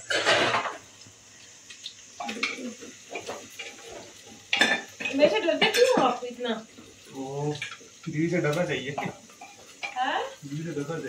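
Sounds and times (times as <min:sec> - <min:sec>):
dishes and utensils clattering: 0:00.0 - 0:00.8, 0:02.2 - 0:06.2, 0:08.9 - 0:10.1.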